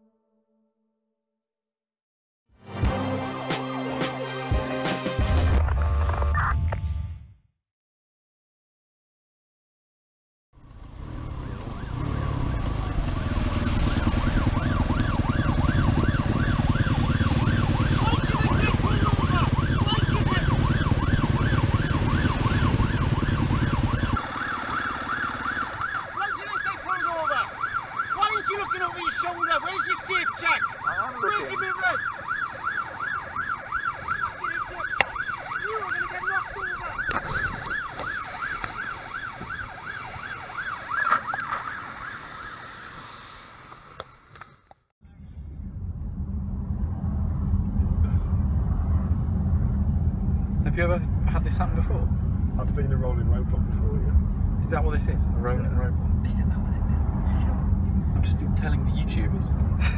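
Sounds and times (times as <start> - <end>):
police siren warbling: 10.6 - 43.0
low rumble of engine and wind: 10.6 - 59.9.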